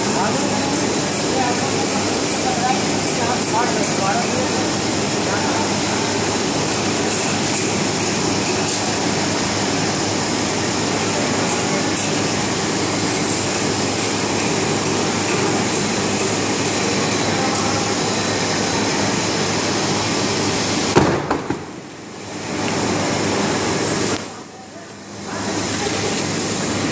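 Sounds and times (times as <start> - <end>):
paper rewinding machine running: 0.0 - 20.9
sharp knocks: 21.0 - 21.8.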